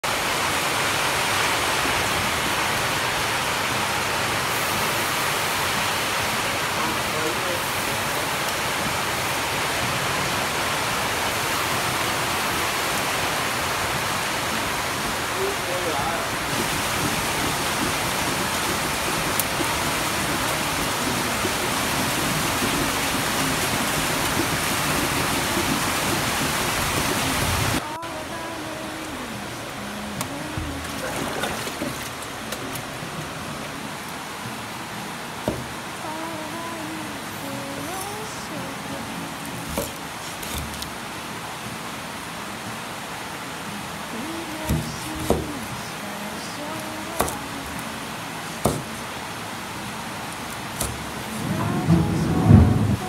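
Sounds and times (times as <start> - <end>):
meat sizzling on charcoal grill: 4.5 - 27.8.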